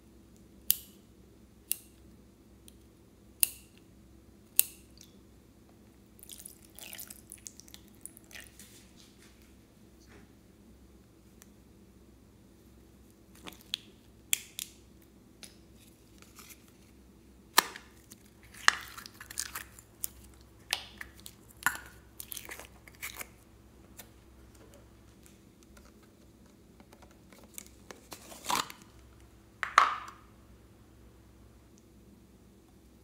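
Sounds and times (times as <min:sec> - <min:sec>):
slime squelching: 0:17.9 - 0:24.1.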